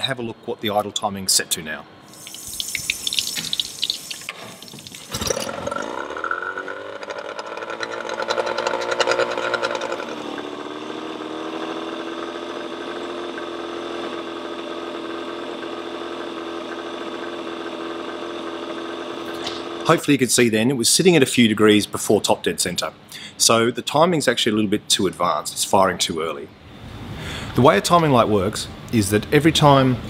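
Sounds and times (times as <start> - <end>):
outboard motor starting and idling: 3.1 - 20.0.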